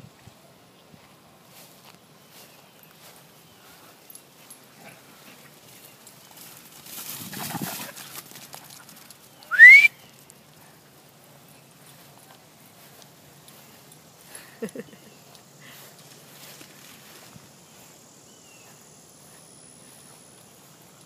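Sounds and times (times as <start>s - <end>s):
dogs scuffling on grass: 0.1s - 21.0s
short rising whistle: 9.5s - 9.9s.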